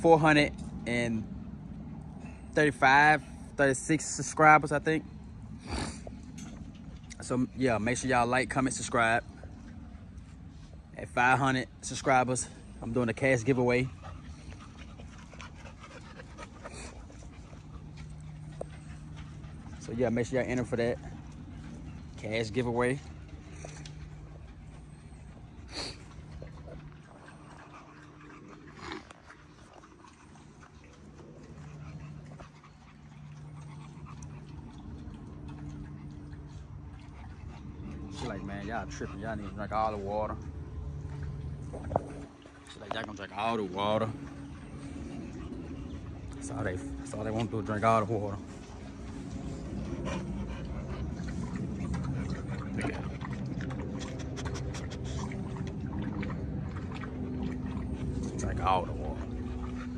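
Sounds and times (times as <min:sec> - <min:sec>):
steady low hum: 0:00.0 - 0:59.9
dog snuffling and breathing: 0:03.2 - 0:59.9
quick wet clicks: 0:50.6 - 0:58.3.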